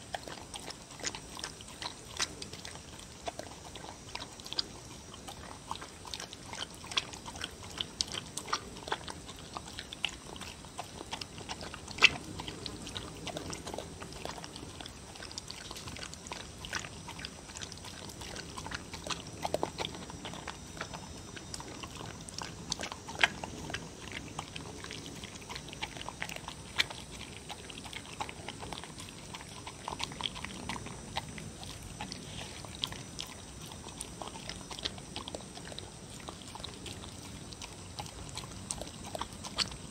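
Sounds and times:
dog chewing and slurping: 0.0s - 39.9s.

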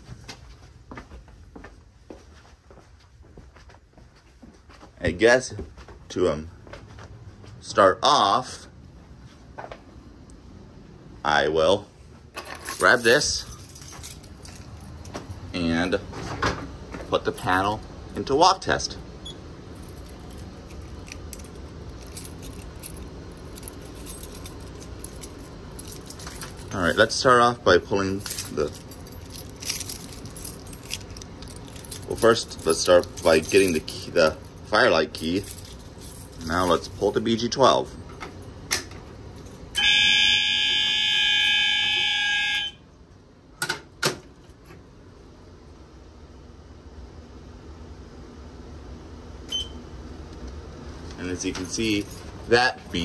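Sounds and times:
keys jingling: 12.4s - 16.0s, 17.4s - 17.8s, 19.7s - 27.3s, 28.0s - 38.7s, 51.4s - 53.0s
fire alarm horn tone: 39.7s - 42.9s.

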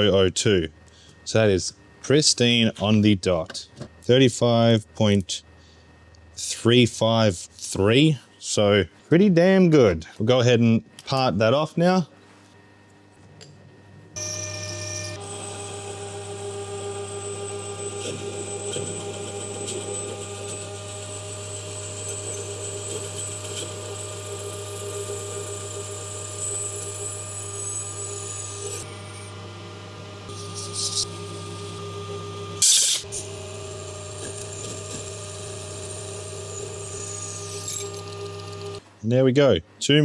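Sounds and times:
metal lathe gear hum: 14.2s - 38.8s.

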